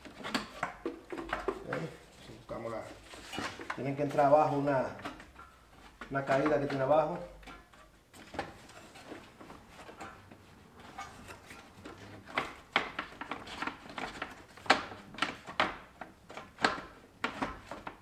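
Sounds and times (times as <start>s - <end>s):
plastic fan shroud knocking and clicking: 0.0s - 1.9s, 11.8s - 18.0s.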